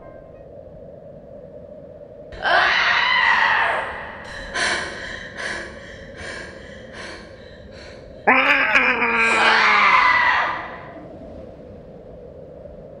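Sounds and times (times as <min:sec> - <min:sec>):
person screaming: 0:08.3 - 0:10.8.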